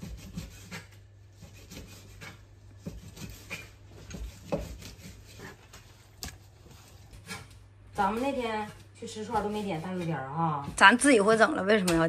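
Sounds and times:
knife cutting meat on board: 0.0s - 5.6s.

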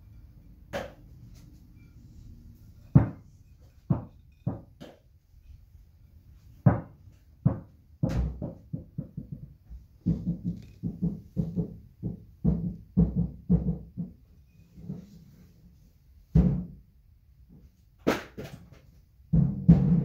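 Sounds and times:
tortoise shells knocking on dishes: 2.8s - 5.2s.

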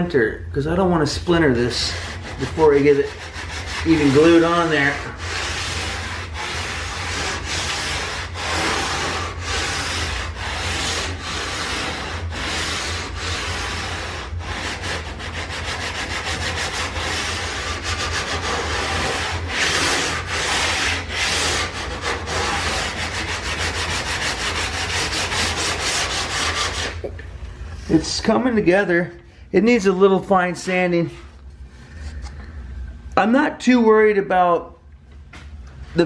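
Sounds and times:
sanding block scraping wood: 1.3s - 27.0s.

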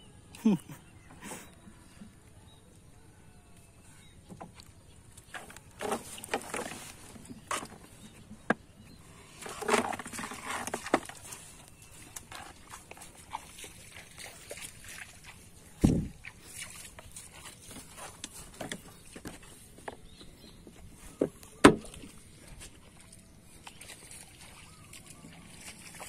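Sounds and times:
squelching footsteps on wet grass: 11.1s - 26.0s
dull thump: 21.2s - 22.0s
knocks on boat: 21.2s - 22.0s.

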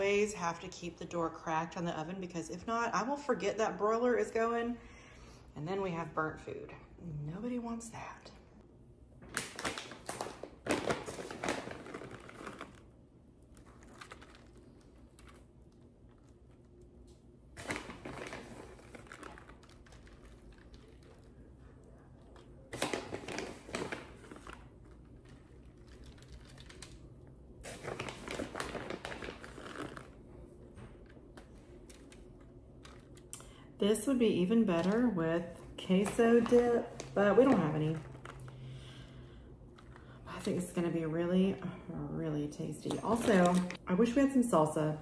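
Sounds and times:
crinkling and rustling: 9.2s - 33.3s, 34.6s - 39.1s.

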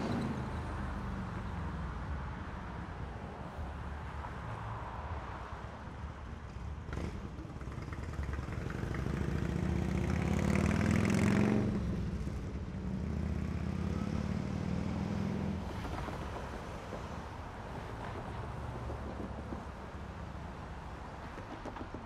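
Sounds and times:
vehicle passing by: 6.9s - 21.0s.

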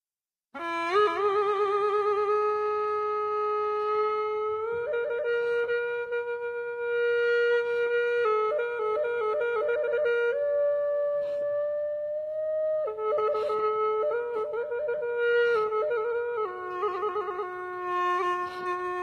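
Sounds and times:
bamboo flute playing: 0.6s - 19.0s.

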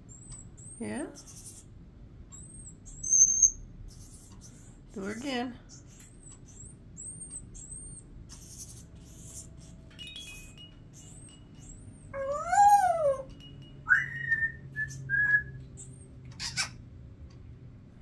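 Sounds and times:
parrot whistling and chirping: 2.4s - 4.8s, 5.7s - 16.8s.

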